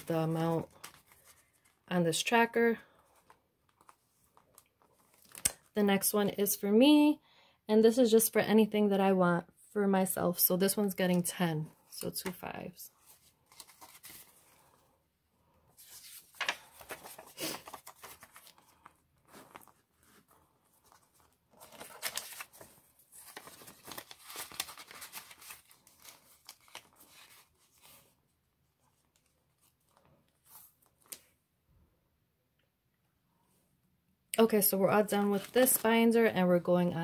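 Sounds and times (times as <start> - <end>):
banknotes and plastic rustling: 0.0 - 2.0, 12.2 - 14.8, 15.7 - 28.2, 34.6 - 36.5.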